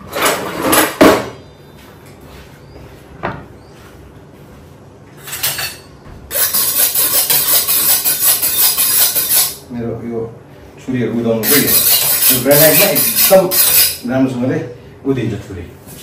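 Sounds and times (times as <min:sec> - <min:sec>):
kitchen knocks and clanks: 0:00.2 - 0:01.4
knife scraping on stone countertop: 0:05.2 - 0:09.6, 0:11.4 - 0:14.0.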